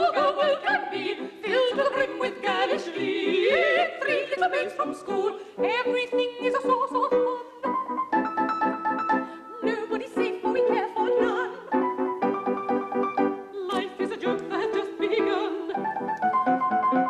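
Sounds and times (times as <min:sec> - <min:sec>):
operatic singing voices: 0:00.0 - 0:07.7, 0:09.6 - 0:11.7, 0:13.6 - 0:16.0.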